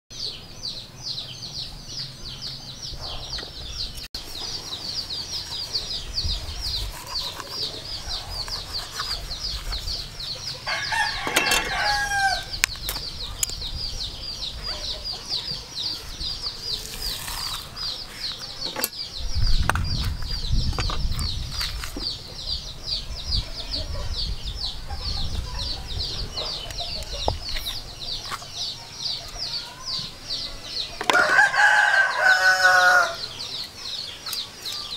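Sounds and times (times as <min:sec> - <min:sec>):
rooster crowing: 0:10.6 - 0:12.5, 0:31.1 - 0:33.4.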